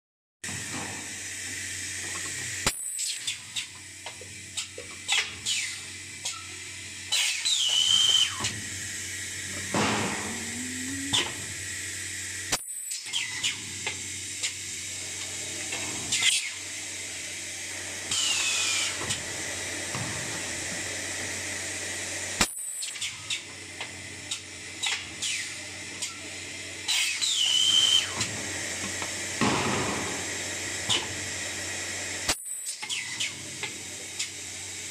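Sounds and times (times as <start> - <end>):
machine hum: 0.5 - 12.6.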